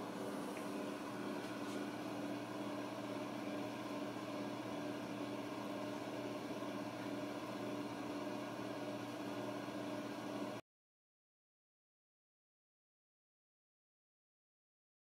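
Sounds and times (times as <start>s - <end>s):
mechanical hum: 0.0s - 10.6s.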